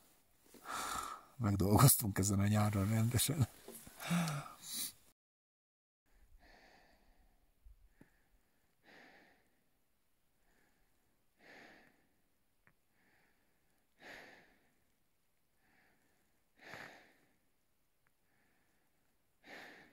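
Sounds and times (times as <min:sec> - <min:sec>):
faint slow breathing: 0:00.5 - 0:01.4, 0:03.5 - 0:05.0, 0:06.2 - 0:09.7, 0:10.3 - 0:12.2, 0:12.9 - 0:14.9, 0:15.5 - 0:17.5, 0:18.1 - 0:19.9.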